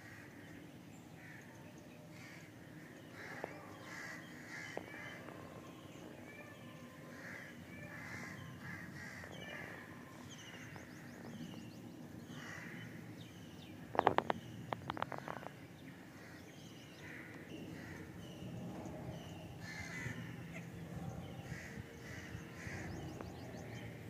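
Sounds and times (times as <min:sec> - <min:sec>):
crows cawing: 0:00.0 - 0:00.4, 0:01.2 - 0:01.5, 0:02.1 - 0:05.6, 0:07.0 - 0:10.8, 0:12.3 - 0:13.1, 0:14.9 - 0:18.2, 0:19.6 - 0:20.7, 0:21.5 - 0:23.3
small birds chirping: 0:00.0 - 0:24.0.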